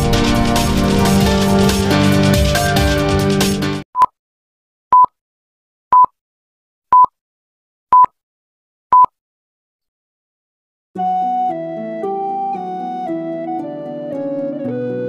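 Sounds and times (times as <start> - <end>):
intro music: 0.0 - 3.8, 11.0 - 15.0.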